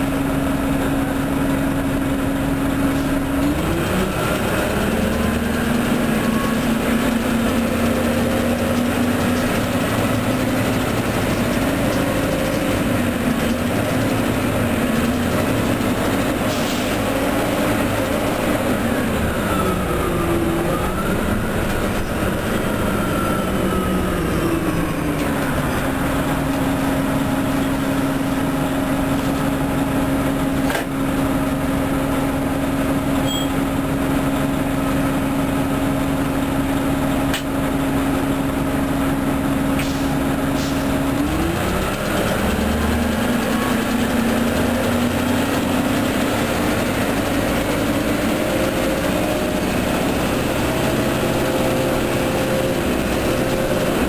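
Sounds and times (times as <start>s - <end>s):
drivetrain whine: 0.0s - 39.8s
bus diesel engine: 0.0s - 54.0s.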